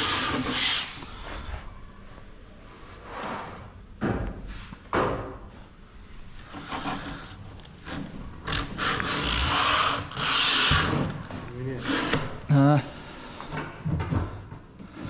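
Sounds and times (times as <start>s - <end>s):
sandpaper rubbing on wood: 8.8s - 11.0s.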